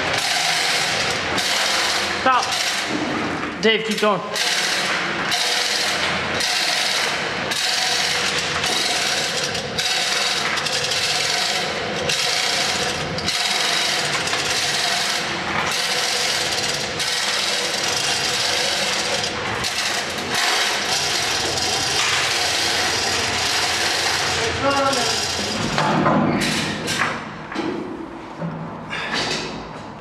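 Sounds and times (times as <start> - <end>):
chain rattling through chain block: 15.8 - 25.6.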